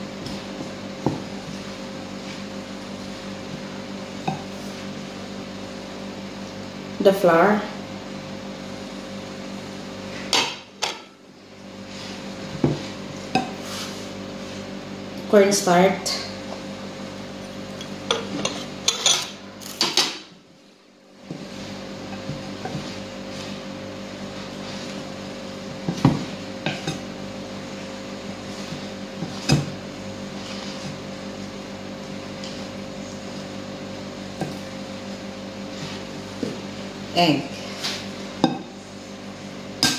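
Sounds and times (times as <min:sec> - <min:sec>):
steady background hum: 0:00.0 - 0:39.9
wooden spatula stirring mixture: 0:21.2 - 0:33.6.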